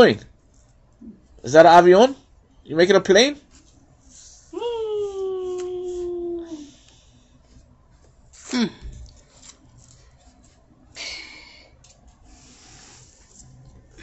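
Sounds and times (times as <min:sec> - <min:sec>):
woman making aeroplane noise: 0:04.5 - 0:06.8.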